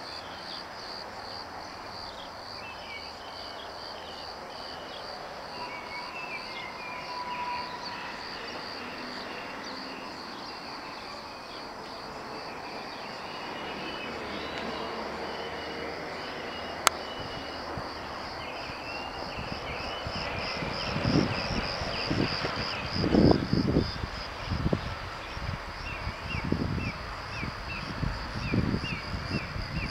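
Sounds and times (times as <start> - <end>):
crickets chirping: 0.0 - 29.9
wind rumbling on microphone: 15.9 - 29.9.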